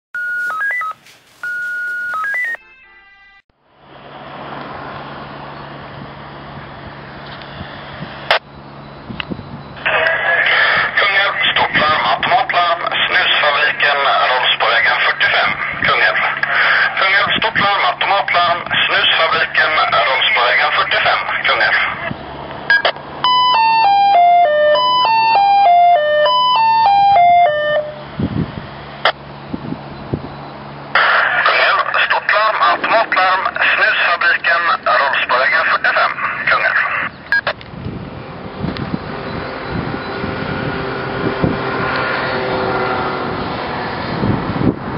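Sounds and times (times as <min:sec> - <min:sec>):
electronic beeping jingle: 0:00.2 - 0:03.4, 0:22.7 - 0:28.0
outdoor background noise: 0:03.5 - 0:44.9.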